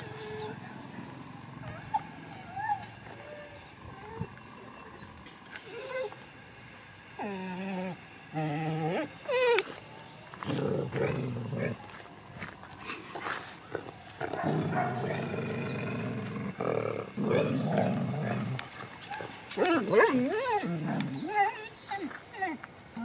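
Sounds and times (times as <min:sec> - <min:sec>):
dogs high wavering cries: 0:00.0 - 0:06.3, 0:07.1 - 0:09.7, 0:19.0 - 0:23.0
dogs growling: 0:00.0 - 0:06.4, 0:07.1 - 0:09.8, 0:10.4 - 0:12.0, 0:13.7 - 0:23.0.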